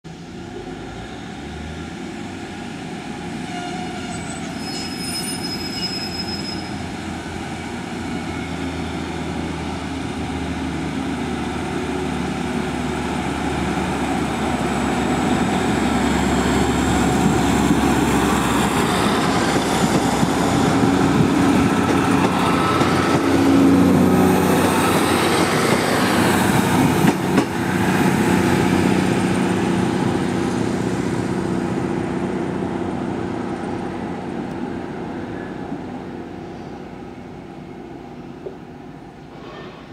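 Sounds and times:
wheel squeal: 0:03.6 - 0:06.8
diesel train engines running: 0:06.7 - 0:39.4.

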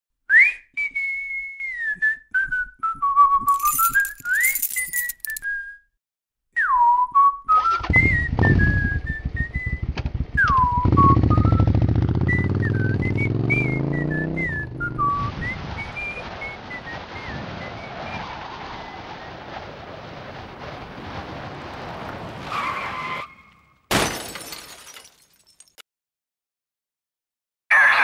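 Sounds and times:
person whistling a tune: 0:00.3 - 0:05.9, 0:06.5 - 0:17.4
motorcycle engine running: 0:09.2 - 0:13.8.

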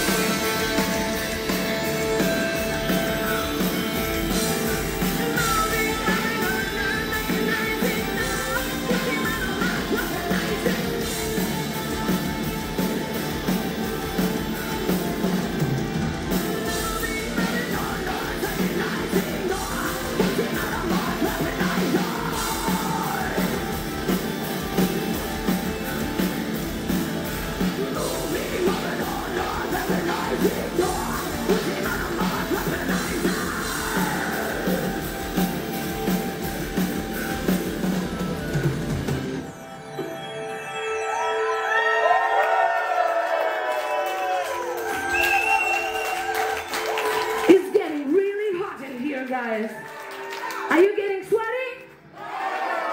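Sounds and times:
live metal band playing: 0:00.0 - 0:42.2
singer's vocals: 0:05.2 - 0:11.1, 0:16.6 - 0:23.9, 0:27.7 - 0:35.2.

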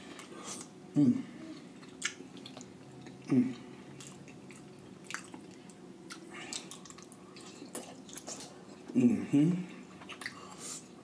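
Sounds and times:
person humming: 0:00.9 - 0:01.6, 0:03.3 - 0:03.7, 0:08.9 - 0:09.7
wet chewing and squishing: 0:01.8 - 0:03.3, 0:03.9 - 0:09.0.

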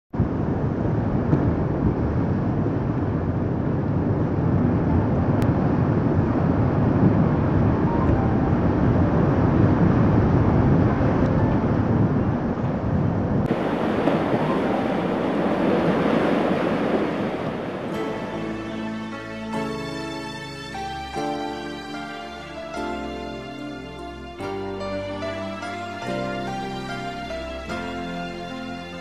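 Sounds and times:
sea surf against breakwater: 0:13.3 - 0:29.0.

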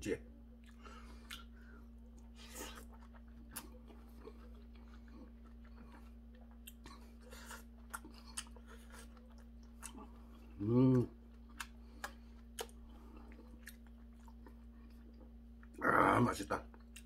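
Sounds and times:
chewing and slurping: 0:00.6 - 0:10.6.

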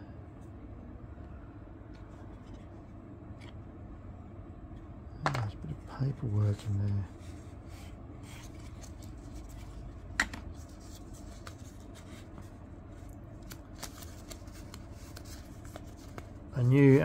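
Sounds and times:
paper crinkling: 0:10.5 - 0:17.0.

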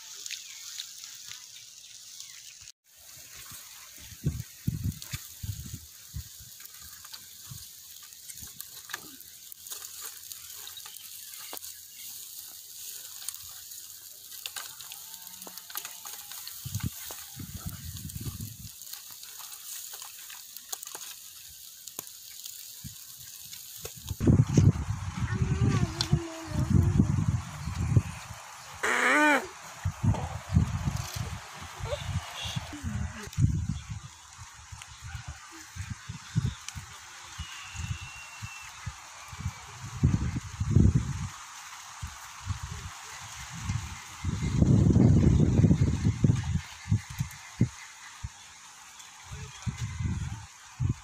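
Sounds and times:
meat sizzling on grill: 0:00.0 - 0:51.0
low rumble: 0:24.2 - 0:28.8.

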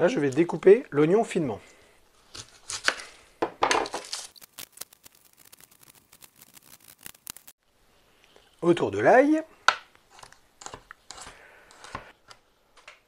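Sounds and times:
knife slicing onion: 0:10.1 - 0:12.4.

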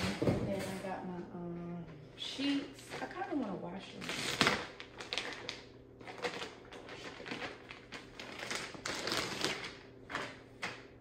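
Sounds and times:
plastic packaging crinkling: 0:02.5 - 0:11.0.

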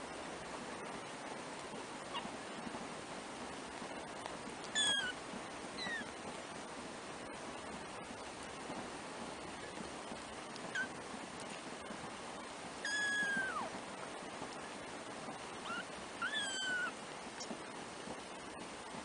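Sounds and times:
steady hiss: 0:00.0 - 0:19.0
kittens mewing: 0:04.8 - 0:05.1, 0:12.9 - 0:13.7, 0:15.7 - 0:17.0.

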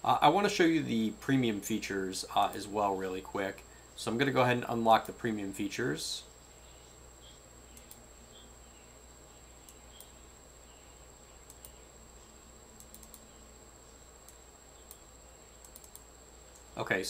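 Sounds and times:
faint high whine: 0:00.0 - 0:17.0
computer clicks: 0:07.7 - 0:08.1, 0:09.6 - 0:10.2, 0:11.4 - 0:11.9, 0:12.8 - 0:13.4, 0:14.2 - 0:16.7.

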